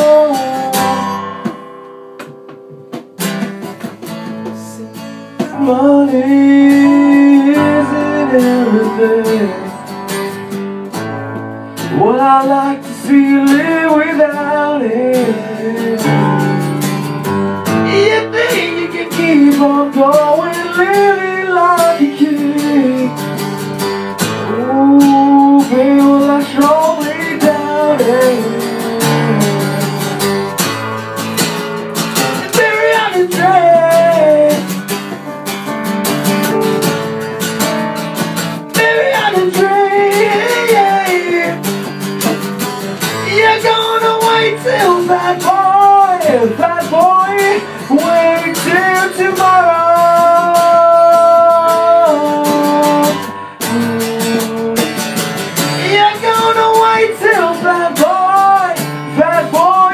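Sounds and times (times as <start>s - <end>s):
man singing: 0.0s - 1.6s, 4.2s - 10.0s, 11.7s - 17.0s, 17.6s - 30.7s, 32.2s - 35.2s, 38.5s - 59.9s
strummed acoustic guitar: 0.0s - 59.9s.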